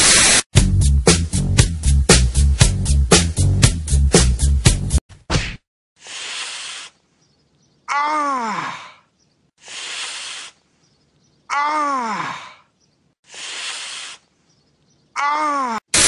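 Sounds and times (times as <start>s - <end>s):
person hissing breathily: 6.0s - 7.0s, 9.6s - 10.6s, 13.2s - 14.3s
person groaning: 7.9s - 9.0s, 11.5s - 12.7s, 15.2s - 15.9s.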